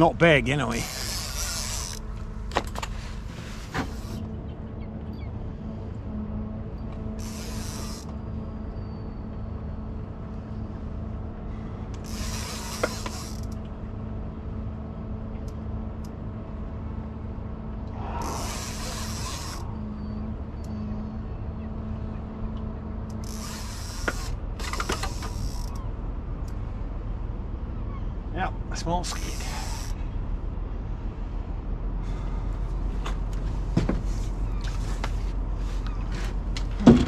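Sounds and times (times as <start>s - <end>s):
steady low hum: 0.0s - 36.9s
fishing reel gears clicking: 0.8s - 2.0s, 7.2s - 8.1s, 12.0s - 13.6s, 18.2s - 19.6s, 23.1s - 25.8s, 29.2s - 30.0s.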